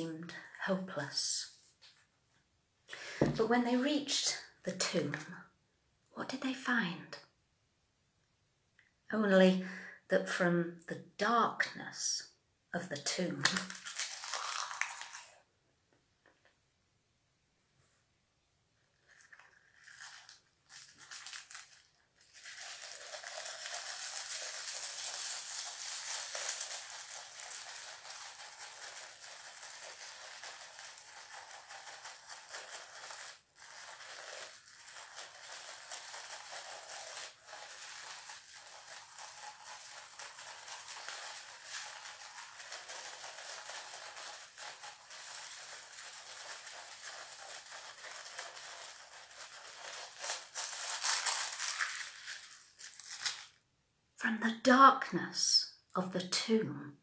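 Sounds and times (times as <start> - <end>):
paper streamer rustling: 13.4 - 15.4, 19.0 - 53.6.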